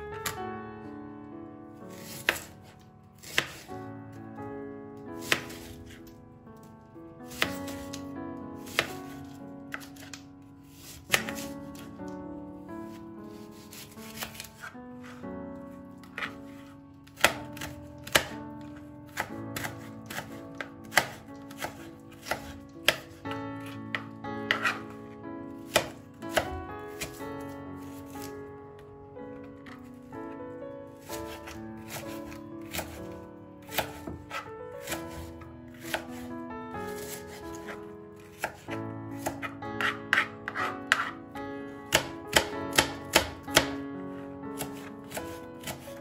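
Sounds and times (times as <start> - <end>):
soft background music: 0.0 - 46.0
knife cutting on cutting board: 1.9 - 2.6, 3.2 - 3.7, 5.2 - 6.0, 7.3 - 8.0, 8.6 - 11.9, 12.9 - 15.2, 16.0 - 25.0, 31.3 - 33.0, 33.7 - 36.2, 36.9 - 41.2, 44.6 - 45.9.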